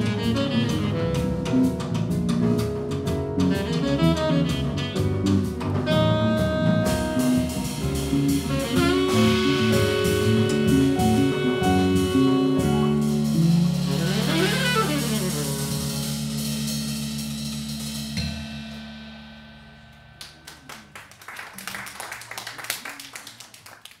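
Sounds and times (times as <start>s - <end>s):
jazz quartet playing: 0.0s - 19.0s
audience applause: 20.2s - 24.0s.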